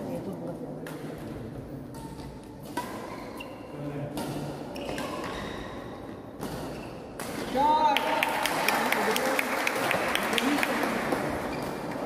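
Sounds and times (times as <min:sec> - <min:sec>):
shoes squeaking on court: 0:01.9 - 0:07.2, 0:11.2 - 0:12.0
rackets hitting shuttlecock: 0:01.9 - 0:08.6.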